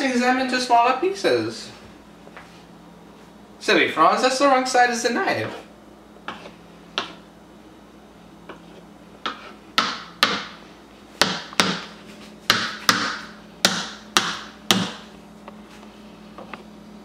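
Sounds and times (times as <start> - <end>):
knife chopping on plastic board: 6.2 - 7.2, 9.2 - 10.6, 11.2 - 15.1.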